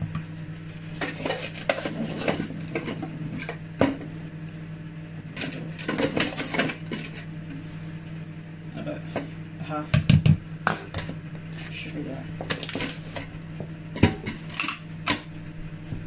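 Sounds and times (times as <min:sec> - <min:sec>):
cup scraping in plastic tub: 0:00.8 - 0:04.3
plastic clattering: 0:12.4 - 0:13.3.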